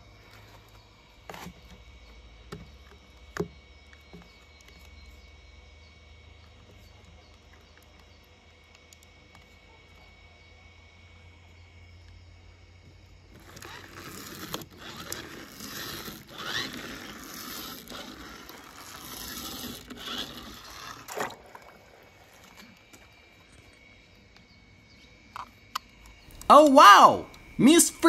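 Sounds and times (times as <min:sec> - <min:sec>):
objects scraping on rough surface: 0:13.5 - 0:21.4.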